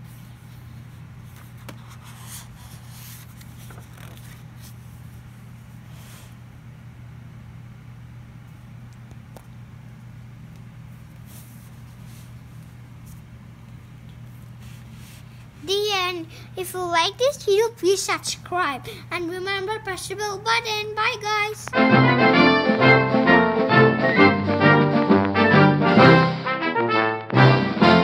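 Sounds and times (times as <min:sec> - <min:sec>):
book pages turning: 0:00.6 - 0:05.0.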